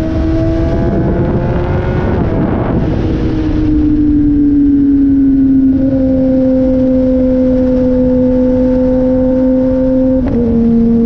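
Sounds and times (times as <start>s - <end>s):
motorcycle engine cruising: 0.0s - 11.0s
wind noise: 0.0s - 11.0s.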